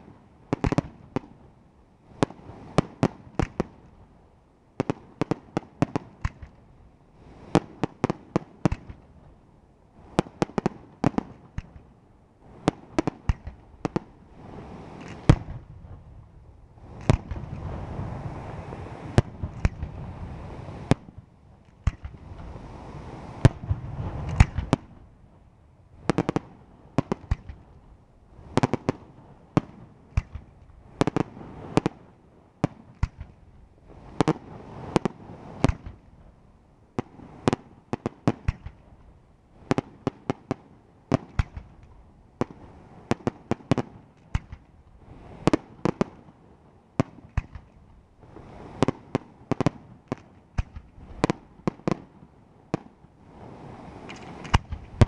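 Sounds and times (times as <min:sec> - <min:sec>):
firework shells bursting: 0:14.9 - 0:15.6, 0:19.2 - 0:20.0, 0:41.1 - 0:44.8, 0:54.0 - 0:55.0.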